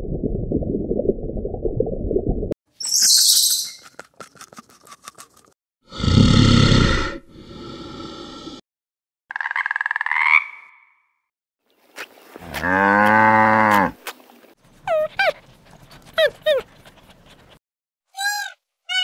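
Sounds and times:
deep growl: 5.9 - 8.6
cow mooing: 12.5 - 14.0.

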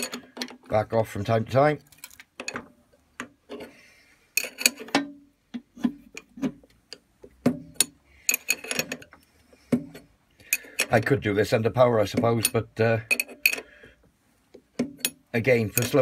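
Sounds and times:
spanner clicking and knocking on metal: 4.4 - 9.2, 12.1 - 13.7, 14.6 - 16.0.

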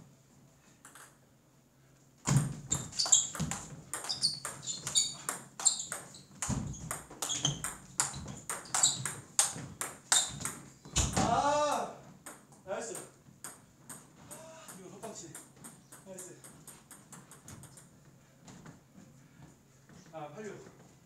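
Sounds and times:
table tennis ball clicking: 6.9 - 10.6, 15.4 - 17.9.

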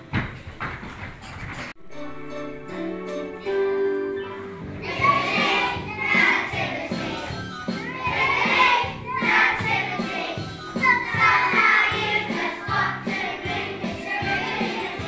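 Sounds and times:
musical accompaniment: 1.8 - 15.0
children singing together: 4.7 - 15.0.

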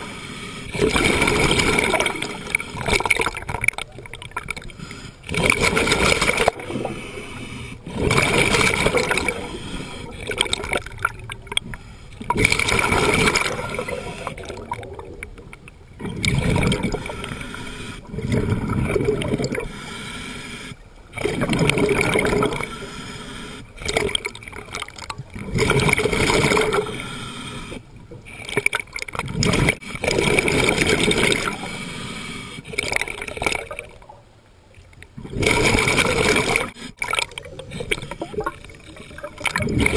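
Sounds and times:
underwater bubbles rushing: 0.7 - 19.7, 21.0 - 22.8, 23.8 - 26.9, 28.1 - 31.7, 32.6 - 39.9.

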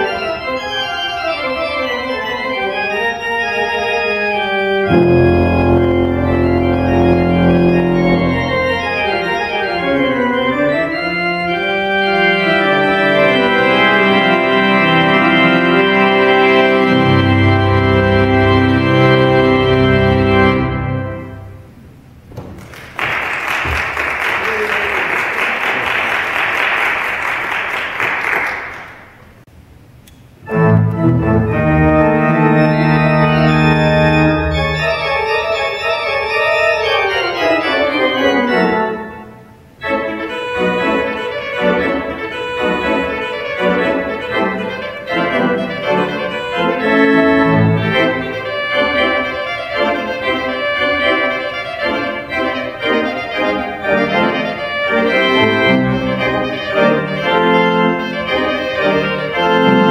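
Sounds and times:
pipe organ playing: 0.0 - 22.2, 30.4 - 59.9
applause: 22.4 - 29.2.

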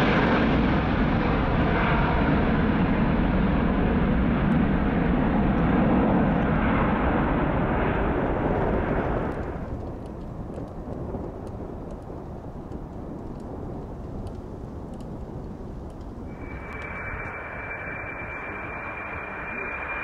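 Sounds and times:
jet engines roaring: 15.7 - 20.0.

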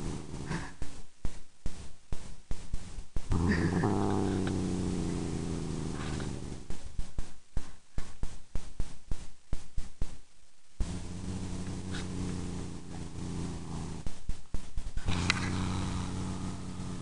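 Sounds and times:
rubbing against microphone: 0.0 - 17.0
cat growling: 3.3 - 6.7, 10.8 - 14.0, 15.0 - 16.8.

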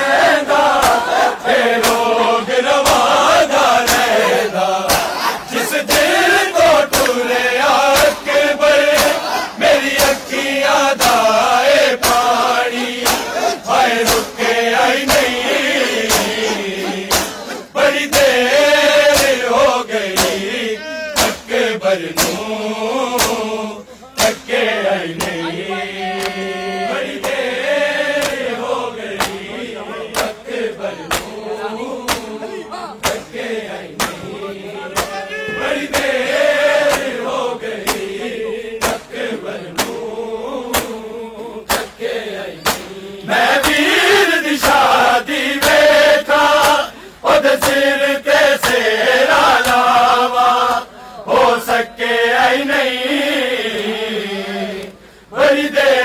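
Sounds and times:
men chanting: 0.0 - 56.0
hands slapping chests: 0.7 - 1.2, 1.8 - 2.2, 2.8 - 3.2, 3.8 - 10.4, 11.0 - 11.4, 12.0 - 18.4, 19.1 - 19.5, 20.1 - 20.5, 21.1 - 21.5, 22.2 - 22.5, 23.2 - 23.5, 24.2 - 24.5, 25.1 - 25.5, 26.2 - 26.5, 27.1 - 27.4, 28.2 - 28.6, 29.2 - 29.5, 30.1 - 31.4, 32.0 - 32.4, 33.0 - 34.3, 34.9 - 35.2, 35.8 - 36.2, 36.8 - 37.2, 37.8 - 38.2, 38.8 - 40.0, 40.7 - 41.0, 41.6 - 42.0, 42.6 - 42.9, 43.5 - 43.9, 45.6 - 45.8, 46.6 - 46.9, 47.5 - 47.8, 48.6 - 48.8.

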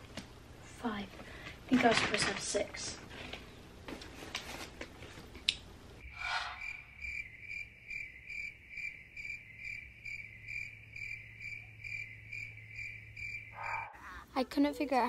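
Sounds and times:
faint clicks and rustles: 1.1 - 5.6
cricket chirping: 6.0 - 14.2.

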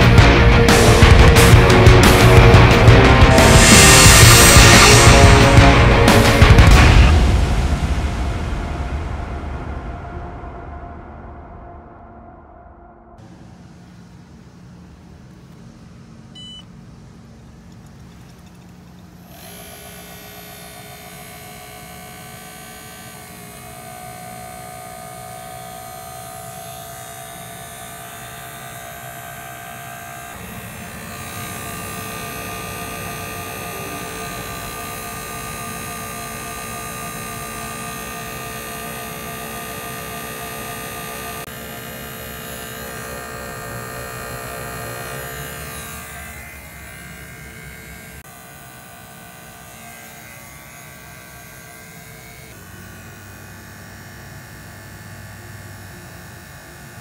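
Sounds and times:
vacuum pump motor humming: 0.0 - 8.0, 13.2 - 57.0.

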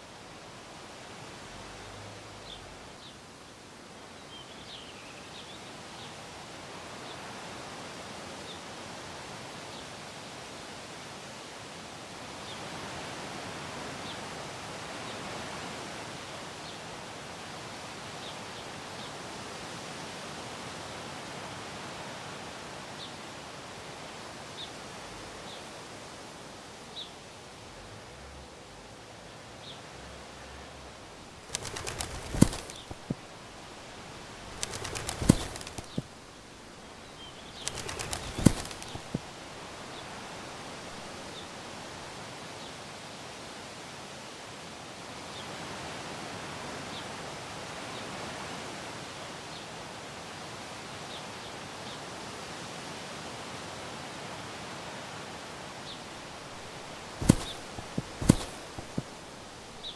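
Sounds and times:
outdoor ambient hiss: 0.0 - 59.9
wind through leaves: 0.0 - 59.9
bird wings flapping: 31.2 - 41.5, 56.0 - 59.9.

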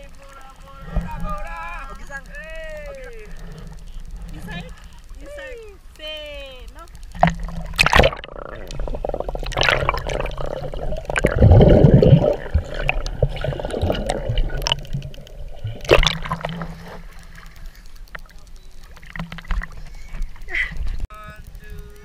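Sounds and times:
muffled underwater water sloshing: 3.2 - 5.2, 6.9 - 21.1
sharp splashes: 7.0 - 20.5
gurgling water rush: 7.0 - 21.1.

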